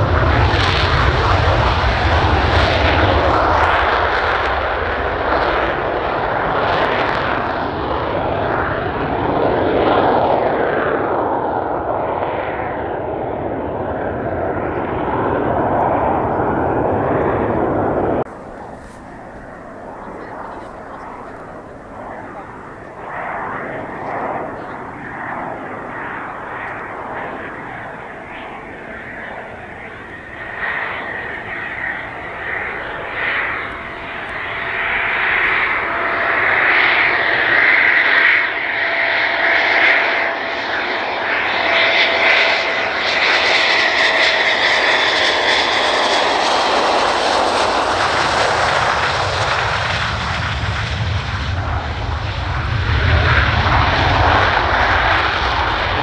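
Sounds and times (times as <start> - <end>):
jet engines whining: 0.0 - 56.0
deep rumble: 12.6 - 37.9.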